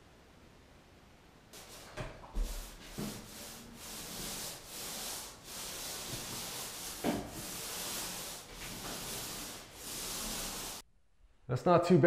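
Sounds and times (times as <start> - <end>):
hand tool rubbing drywall: 1.6 - 10.8.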